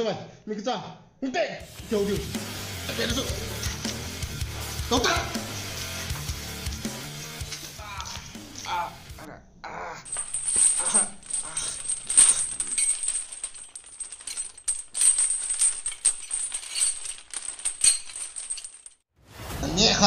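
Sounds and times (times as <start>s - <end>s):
metal chain rattling: 4.9s - 9.0s, 10.1s - 19.0s.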